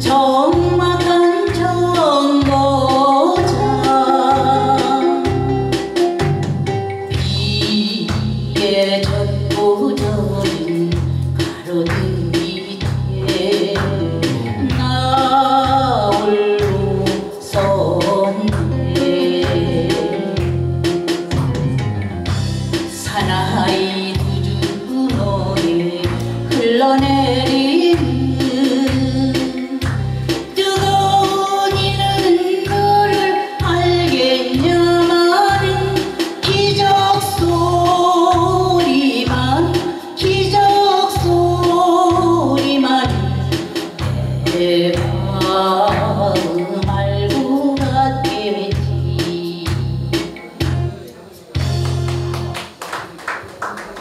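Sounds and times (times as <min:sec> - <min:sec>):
woman singing into a microphone: 0:00.0 - 0:06.2, 0:07.0 - 0:20.7, 0:22.9 - 0:51.1
backing track with bass beat: 0:00.0 - 0:52.6.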